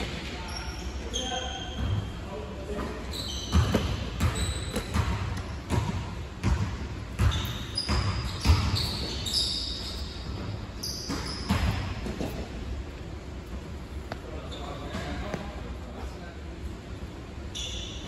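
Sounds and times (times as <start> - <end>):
sneaker squeaks on court: 0.0 - 12.4, 14.1 - 15.6, 17.5 - 18.0
basketball bouncing on court: 3.2 - 9.3, 10.8 - 12.4.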